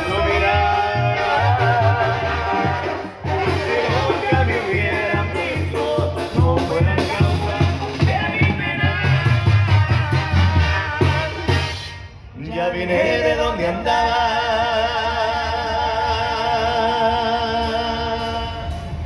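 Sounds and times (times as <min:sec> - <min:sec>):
music with singing: 0:00.0 - 0:19.0
drum beat: 0:01.2 - 0:11.7.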